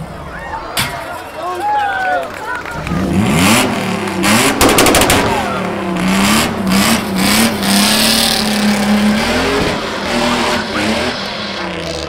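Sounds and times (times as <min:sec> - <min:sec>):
car engine revving hard: 0:02.9 - 0:12.0.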